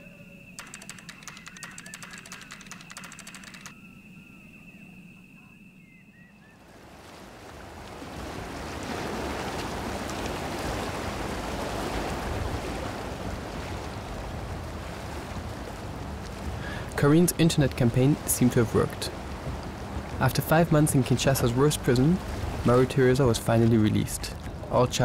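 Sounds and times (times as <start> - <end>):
river water rushing and splashing: 6.7 - 24.8.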